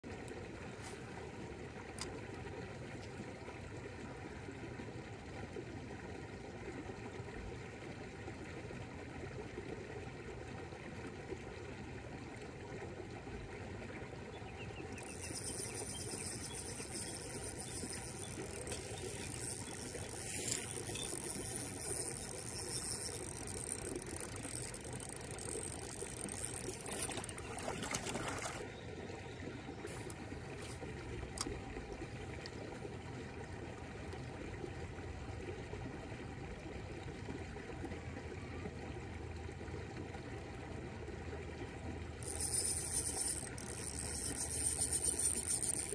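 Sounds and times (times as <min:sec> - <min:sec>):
moving water: 0:00.0 - 0:45.9
fish thrashing and splashing: 0:15.0 - 0:28.6.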